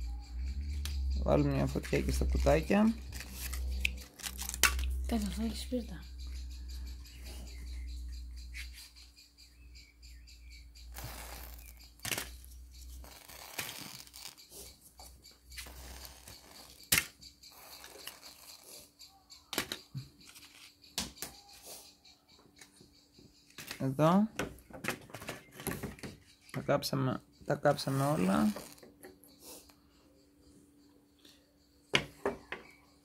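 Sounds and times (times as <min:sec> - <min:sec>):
matchboxes clicking and rustling: 0:02.2 - 0:05.3, 0:11.5 - 0:14.5.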